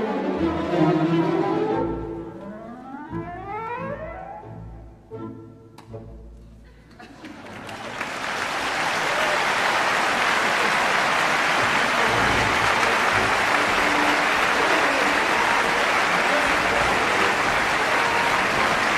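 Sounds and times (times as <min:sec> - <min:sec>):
audience applauding: 0:06.9 - 0:18.9.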